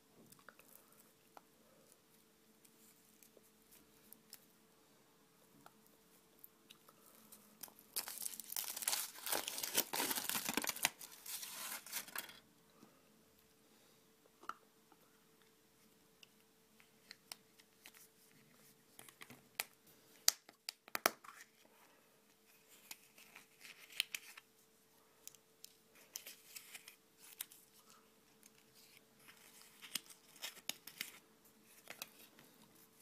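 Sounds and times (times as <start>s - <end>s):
faint steady hum: 0.0s - 33.0s
crinkling: 5.6s - 12.4s, 22.4s - 24.6s, 25.2s - 33.0s.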